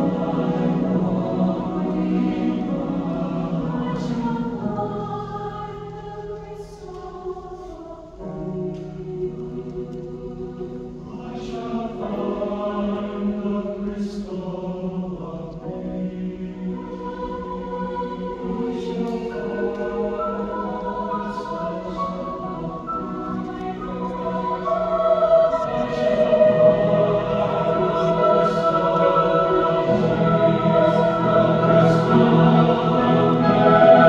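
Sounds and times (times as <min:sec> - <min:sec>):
piano accompaniment: 0:00.0 - 0:06.4, 0:15.7 - 0:34.0
choir singing: 0:00.0 - 0:34.0.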